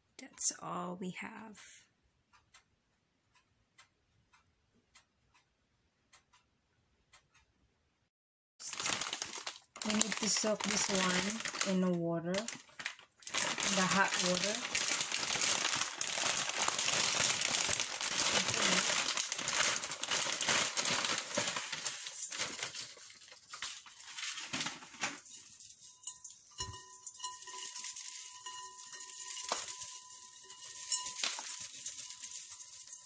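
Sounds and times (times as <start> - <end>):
plastic packaging crinkling: 8.6 - 33.0.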